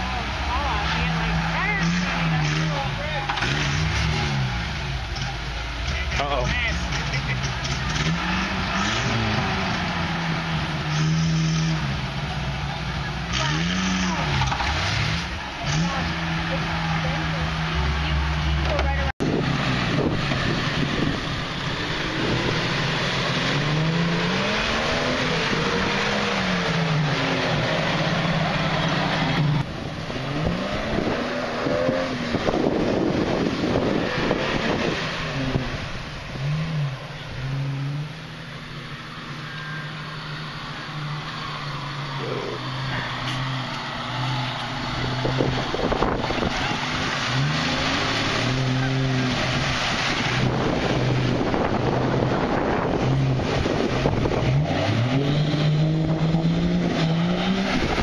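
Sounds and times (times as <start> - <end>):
distant engine revving: 0.0 - 58.0
engine revving in mud: 0.0 - 58.0
tires churning water: 0.0 - 58.0
water rushing and splashing: 0.0 - 58.0.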